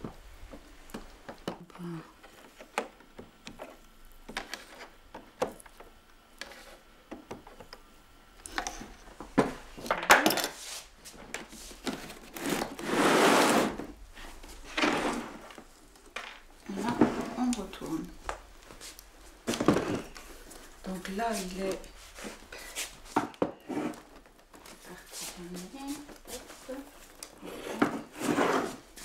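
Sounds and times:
panel scraping across wooden bench: 0:12.3 - 0:13.9, 0:27.5 - 0:28.8.

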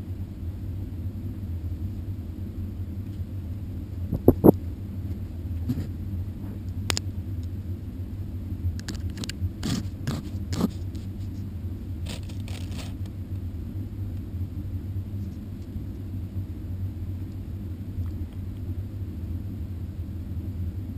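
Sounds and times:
steady low rumble: 0:00.0 - 0:20.9.

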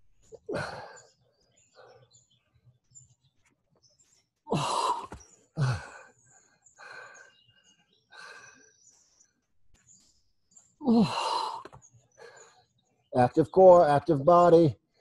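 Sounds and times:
man breathing hard: 0:00.3 - 0:01.1, 0:04.5 - 0:09.2, 0:10.8 - 0:12.7.

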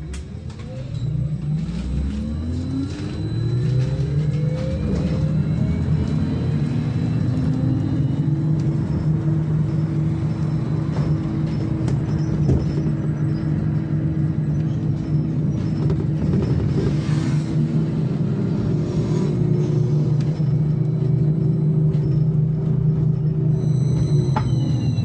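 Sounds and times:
electric drive whine: 0:00.0 - 0:14.6
body and tyres rumble: 0:00.0 - 0:25.0.

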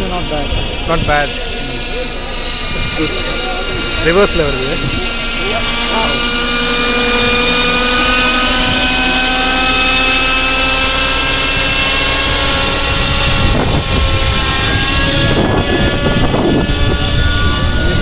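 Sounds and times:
model helicopter engine whining: 0:00.0 - 0:18.0.

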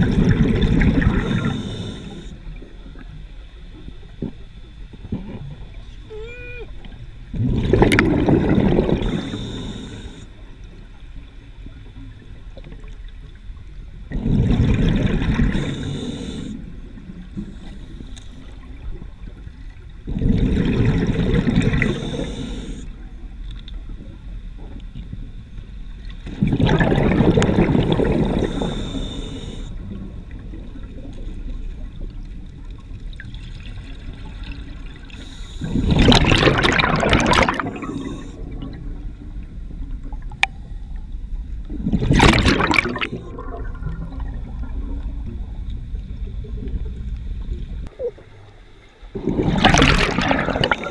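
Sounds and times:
diver exhaling bubbles underwater: 0:00.0 - 0:01.9, 0:07.3 - 0:09.8, 0:14.1 - 0:16.0, 0:20.1 - 0:22.6, 0:26.3 - 0:29.1, 0:35.6 - 0:38.9, 0:41.7 - 0:45.2, 0:49.1 - 0:50.9.

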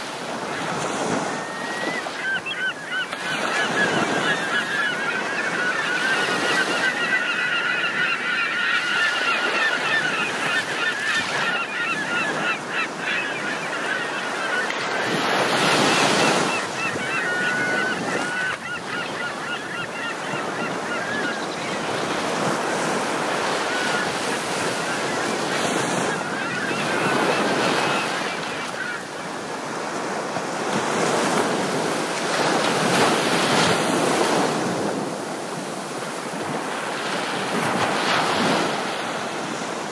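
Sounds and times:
birds honking: 0:01.1 - 0:30.2.

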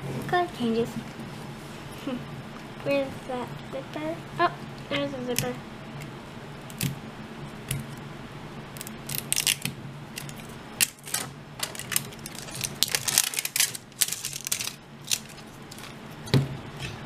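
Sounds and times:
plastic wrapper tearing: 0:09.1 - 0:09.6, 0:10.2 - 0:16.0.

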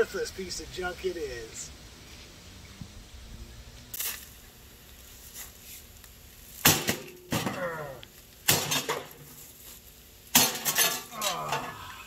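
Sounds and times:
axe hitting plastic housing: 0:06.6 - 0:07.7, 0:08.5 - 0:09.2, 0:10.4 - 0:11.1.

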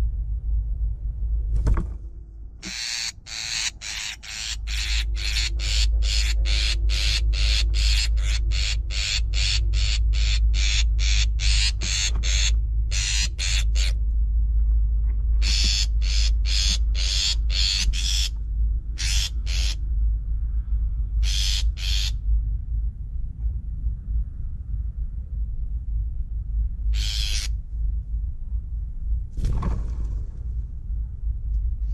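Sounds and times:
steady low rumble: 0:00.0 - 0:31.9
bird harsh rasping scold calls: 0:02.6 - 0:14.0, 0:15.4 - 0:18.4, 0:19.0 - 0:19.8, 0:21.2 - 0:22.2, 0:27.0 - 0:27.5.

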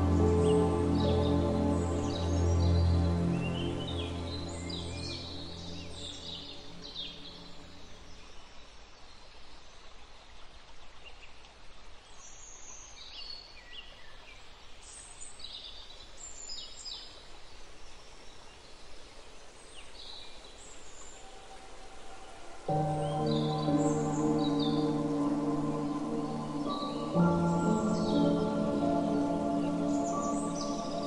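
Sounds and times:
faint outdoor hiss: 0:00.0 - 0:31.0
small birds chirping: 0:19.8 - 0:31.0.

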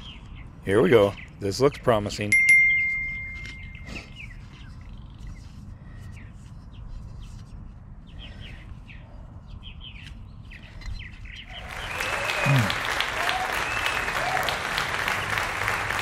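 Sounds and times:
small birds chirping: 0:00.0 - 0:12.7.

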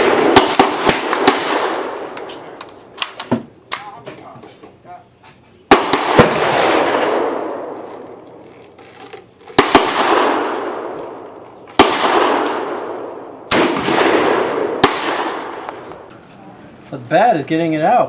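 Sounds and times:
rifle shots with echo: 0:00.0 - 0:03.2, 0:05.7 - 0:08.4, 0:09.5 - 0:16.1.

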